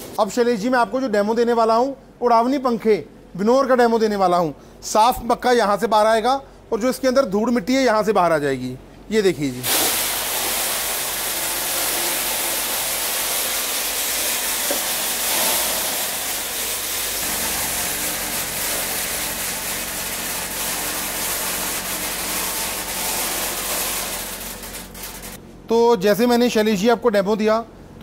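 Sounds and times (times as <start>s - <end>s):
fan winnower air rushing: 9.6s - 25.4s
kernels pouring: 9.6s - 25.4s.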